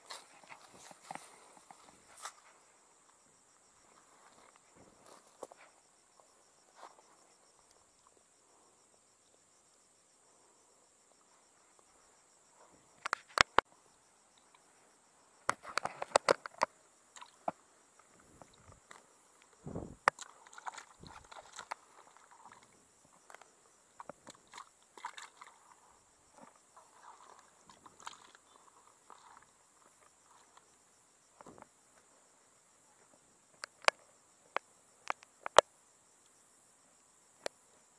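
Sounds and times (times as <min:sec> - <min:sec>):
high insect drone: 0:00.0 - 0:37.9
fish splashing in water: 0:24.5 - 0:25.6.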